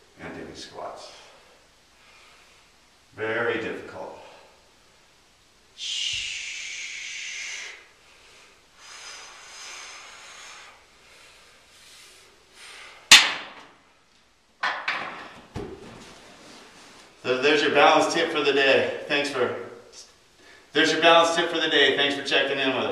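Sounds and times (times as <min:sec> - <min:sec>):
man breathing with a hiss: 0:01.1 - 0:02.8, 0:05.8 - 0:13.1
sharp knocks: 0:13.1 - 0:13.7, 0:14.6 - 0:16.0.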